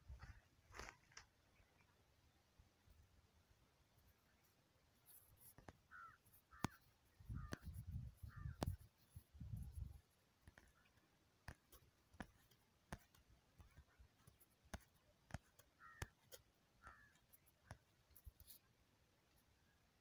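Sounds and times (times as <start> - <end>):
faint clicks: 5.1 - 8.9, 9.6 - 18.7.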